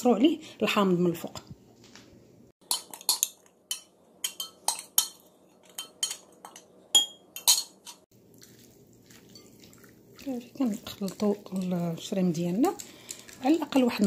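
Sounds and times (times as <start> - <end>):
glass clinks: 5.8 - 8.0.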